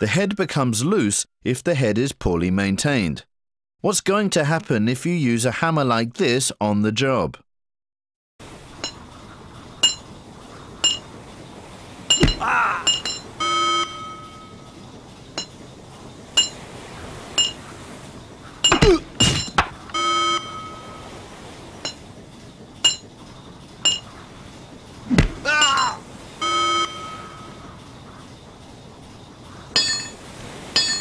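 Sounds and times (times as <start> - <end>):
hammer striking metal bolts: 12.1 - 13.3, 18.7 - 19.8.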